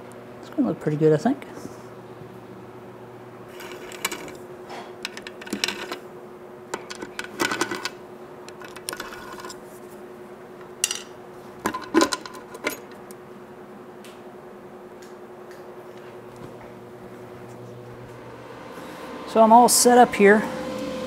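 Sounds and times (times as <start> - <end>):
steady low hum: 0.0 - 21.0
metallic clicks and rattles: 5.0 - 6.0, 6.8 - 9.6, 10.8 - 13.1.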